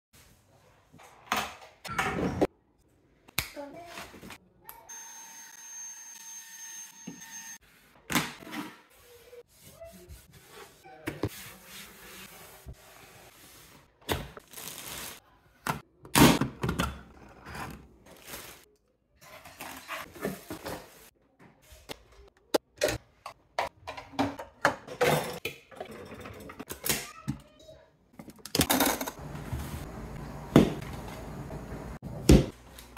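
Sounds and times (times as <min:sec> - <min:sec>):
plastic containers and dishes clattering: 0:19.2 - 0:21.1, 0:22.6 - 0:26.9.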